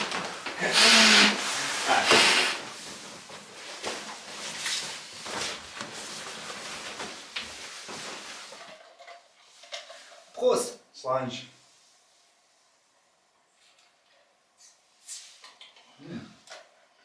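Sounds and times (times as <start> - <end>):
breath blown into valve: 0.7 - 2.6
nylon sleeping bag rustling: 1.4 - 8.6.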